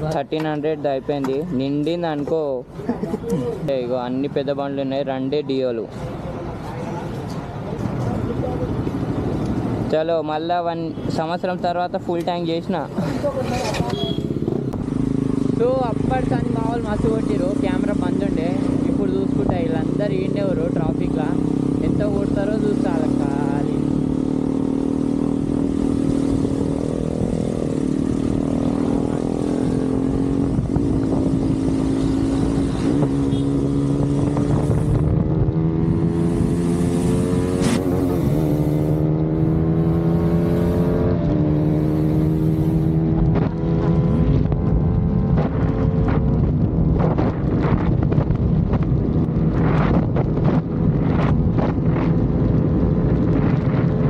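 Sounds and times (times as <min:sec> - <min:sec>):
motorcycle engine running: 0:13.1 - 0:54.0
wind noise on microphone: 0:20.6 - 0:54.0.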